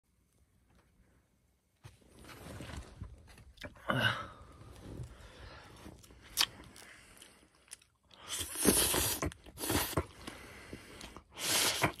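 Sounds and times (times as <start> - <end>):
slurping and chewing noodles: 6.0 - 12.0.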